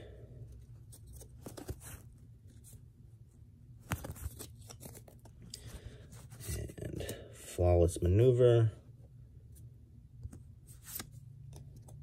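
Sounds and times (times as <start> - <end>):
cards flipped by hand: 0.8 - 2.0, 3.8 - 5.7, 10.2 - 12.0.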